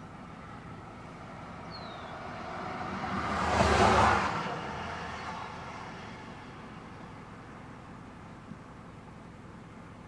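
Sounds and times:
vehicle passing by: 0.4s - 7.3s
bird chirp: 1.6s - 2.2s.

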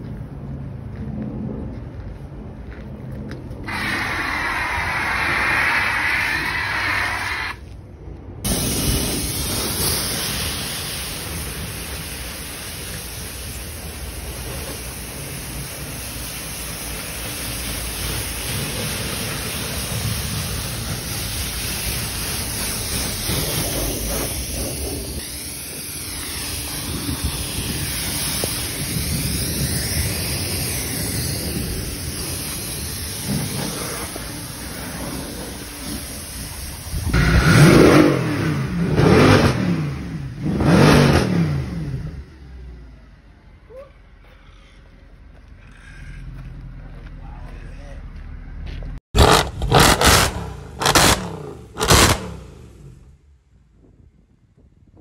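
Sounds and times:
pressure washer spraying: 3.7s - 7.6s, 8.5s - 39.3s.

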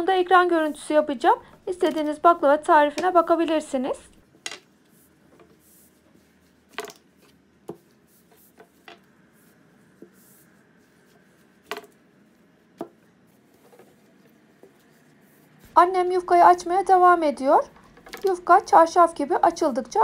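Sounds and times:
faint rubbing of dough: 0.1s - 2.5s, 4.7s - 17.2s.

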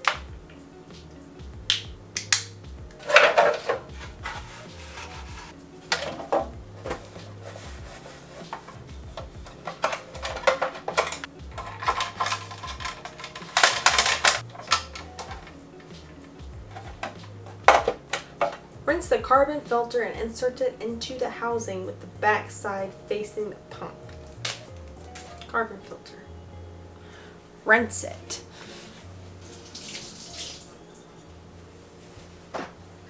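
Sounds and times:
hard plastic clicking and scraping: 8.5s - 15.5s.

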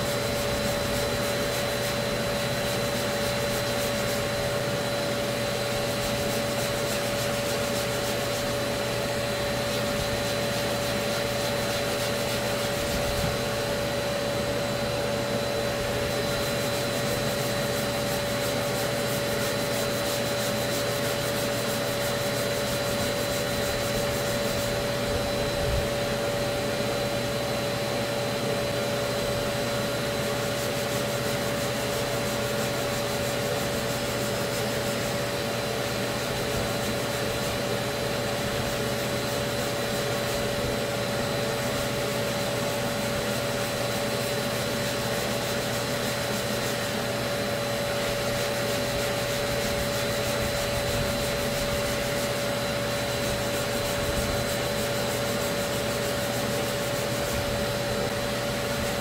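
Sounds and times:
sandpaper rubbing on filler: 0.0s - 59.0s
steady machine hum: 0.0s - 59.0s.

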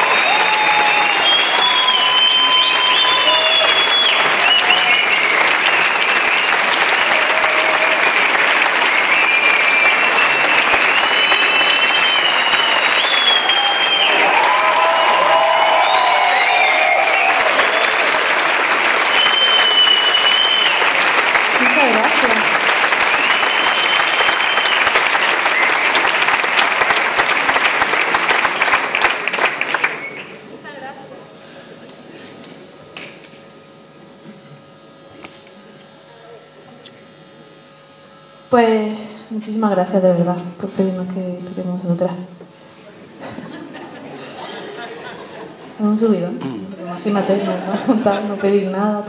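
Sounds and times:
long high whistles: 0.0s - 7.4s, 8.8s - 21.1s, 23.0s - 26.4s, 29.7s - 30.4s
audience calling for encore: 0.0s - 26.9s
audience applauding: 0.0s - 30.4s.

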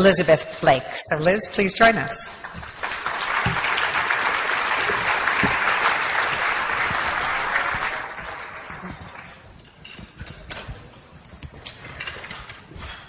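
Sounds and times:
audience applauding: 2.4s - 9.4s.

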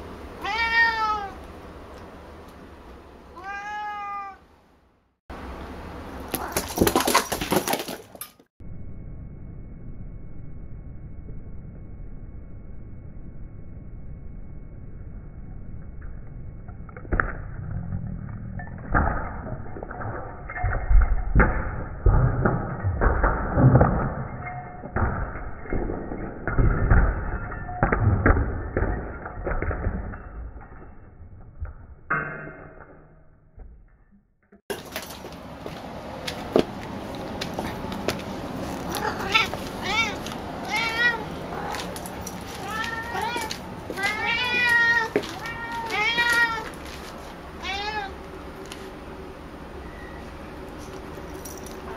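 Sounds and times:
cat meowing: 0.4s - 1.4s, 3.3s - 4.4s, 38.9s - 41.4s, 42.5s - 46.7s, 47.6s - 48.2s.

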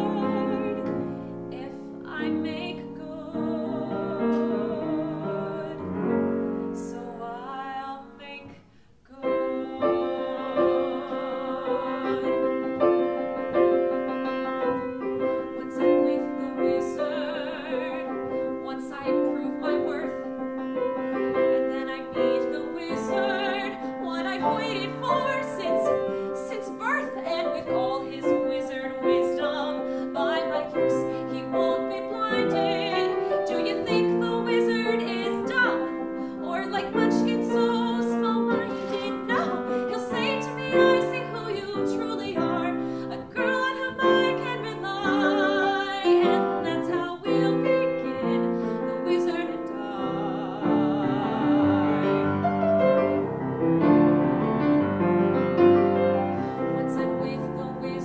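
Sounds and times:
woman singing: 0.0s - 13.9s, 14.5s - 52.8s, 56.2s - 58.0s
grand piano accompaniment: 0.0s - 58.0s.

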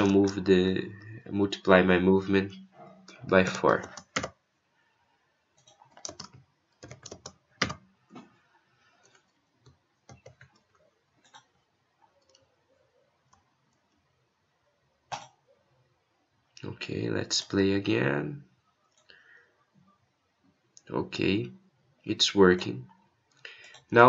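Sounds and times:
typing on computer keyboard: 3.1s - 4.4s, 5.6s - 7.9s, 9.0s - 11.5s.

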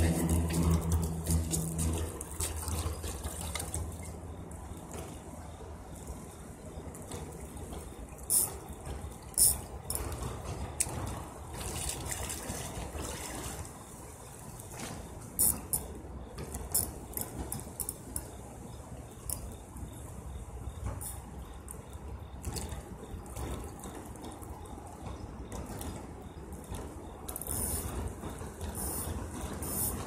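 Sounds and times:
river water lapping at shoreline: 0.0s - 15.3s.

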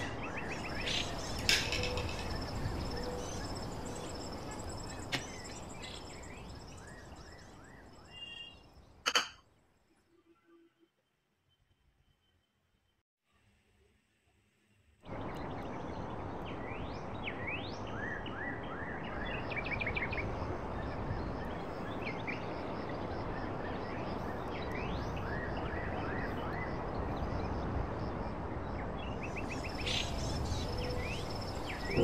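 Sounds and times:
bird trills: 0.0s - 9.3s
birds chirping: 0.0s - 9.8s, 15.1s - 32.0s.

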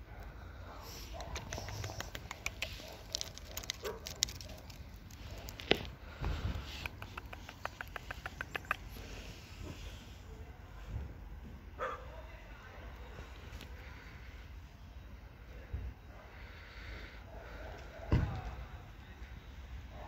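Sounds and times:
cat chewing wet food: 1.2s - 9.0s.

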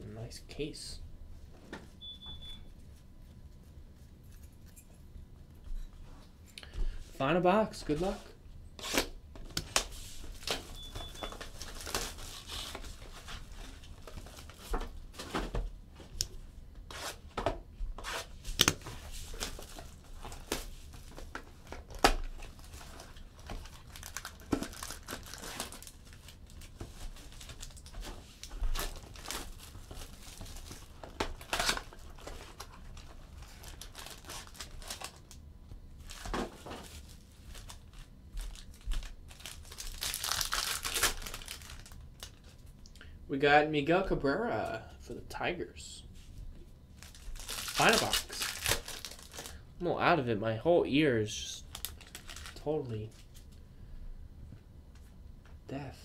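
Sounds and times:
plastic wrap crinkling and tearing: 8.8s - 14.8s, 18.5s - 35.4s, 36.0s - 42.6s, 47.0s - 49.6s, 51.5s - 53.5s.

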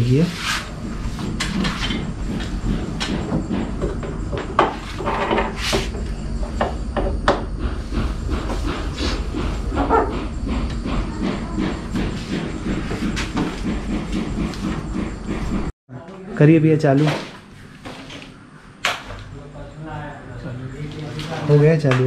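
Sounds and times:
steady low hum: 0.0s - 21.5s
metal cabinet knocking and scraping: 0.7s - 15.7s.

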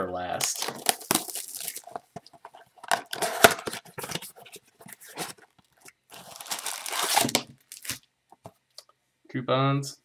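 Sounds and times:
cardboard box tearing open: 2.9s - 4.2s, 6.1s - 8.0s.

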